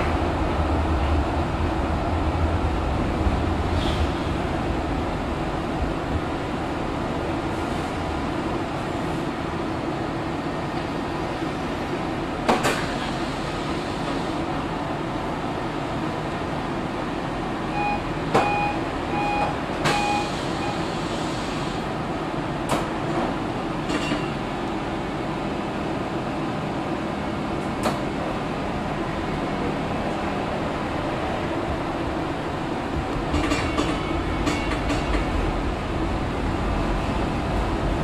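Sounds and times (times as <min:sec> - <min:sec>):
tram equipment humming: 0:00.0 - 0:38.0
short beeps: 0:17.7 - 0:20.8.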